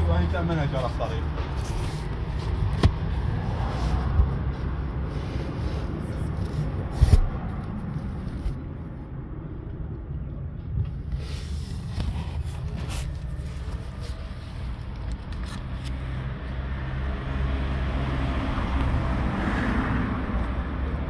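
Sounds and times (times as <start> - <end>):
low steady rumble: 0.1 - 16.1.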